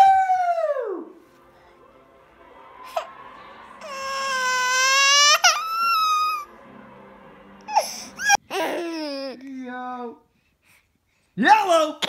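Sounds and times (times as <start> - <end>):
baby crying: 3.8 - 6.5, 7.7 - 9.6.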